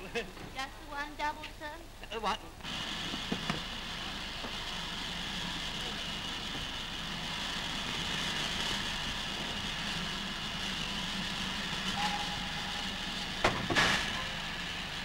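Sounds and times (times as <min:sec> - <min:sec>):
steam hissing: 0:02.7 - 0:15.0
low hum: 0:11.2 - 0:15.0
short faint tone: 0:11.9 - 0:13.2.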